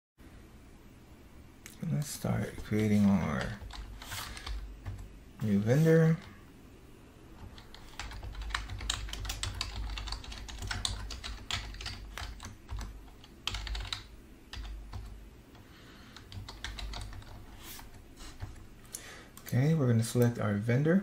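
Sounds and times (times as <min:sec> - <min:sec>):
typing on computer keyboard: 0:03.3 - 0:05.1, 0:07.4 - 0:17.5.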